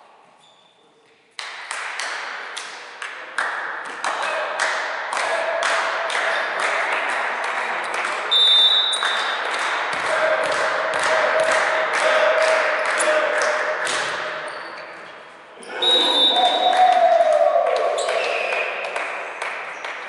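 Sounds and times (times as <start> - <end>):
spectators clapping rhythmically: 1.3 - 14.4, 16.3 - 20.0
referee's whistle: 8.3 - 9.4, 15.8 - 16.8.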